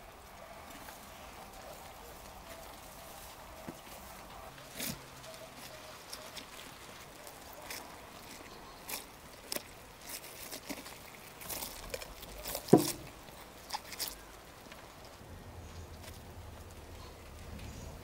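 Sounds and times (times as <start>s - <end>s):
knife cutting roasted skin: 10.2s - 13.9s.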